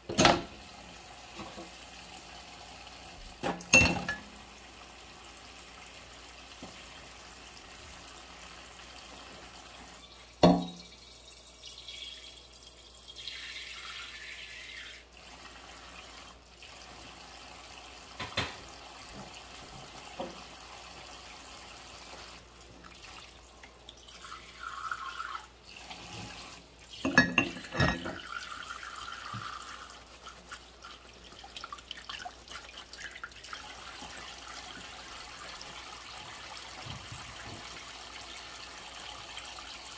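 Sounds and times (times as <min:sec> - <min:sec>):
crockery clinking: 0:03.7 - 0:04.3, 0:27.0 - 0:28.2
water dripping and sloshing: 0:21.9 - 0:39.9.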